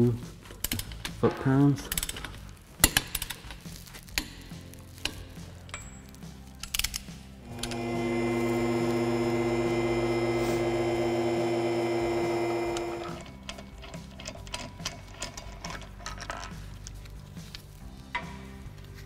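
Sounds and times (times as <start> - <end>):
electric pump motor humming: 7.4 - 13.4
faint clicks and rattles: 12.7 - 19.0.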